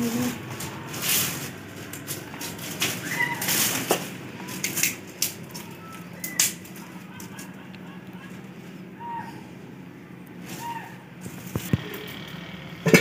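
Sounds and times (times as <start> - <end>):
twigs snapping: 0.6 - 7.8.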